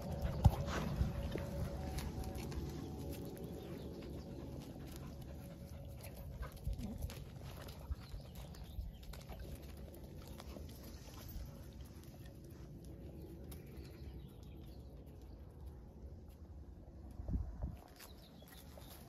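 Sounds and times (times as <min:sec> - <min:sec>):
dogs sniffing: 0:00.0 - 0:08.6
low steady rumble: 0:00.0 - 0:17.9.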